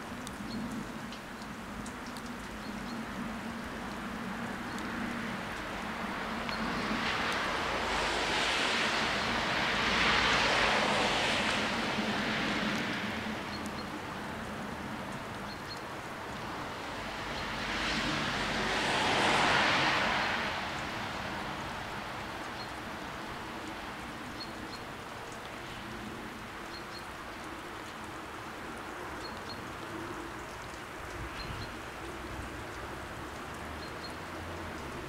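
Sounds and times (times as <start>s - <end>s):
light rain hiss: 0.0s - 35.0s.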